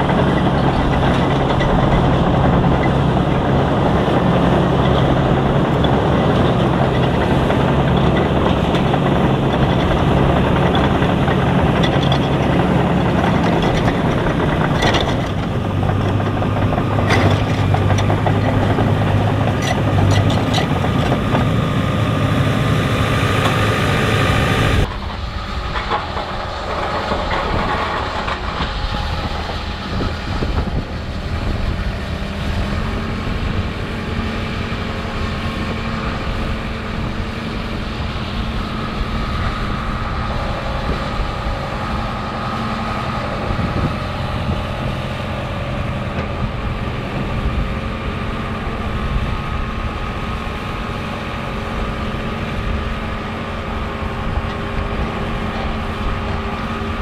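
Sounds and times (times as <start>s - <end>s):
steel tracks clattering: 0.0s - 22.1s, 24.8s - 33.7s
bulldozer diesel engine running: 0.0s - 57.0s.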